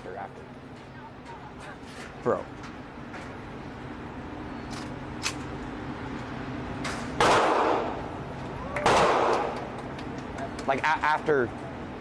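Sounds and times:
loud gunshots: 7.2s - 8.0s, 8.8s - 9.6s.

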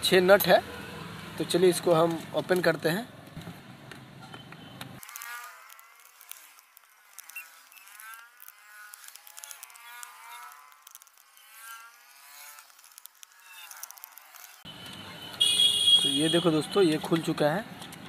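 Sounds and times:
screwdriver squeaking: 4.4s - 14.6s.

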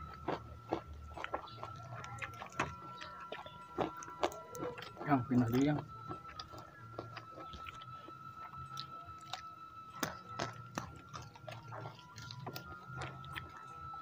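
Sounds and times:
chewing and mouth smacks: 0.0s - 14.0s
thin steady high tone: 0.0s - 14.0s.

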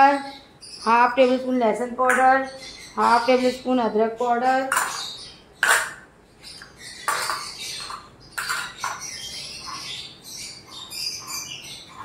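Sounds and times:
plastic bowls clattering on glass: 4.6s - 9.8s.

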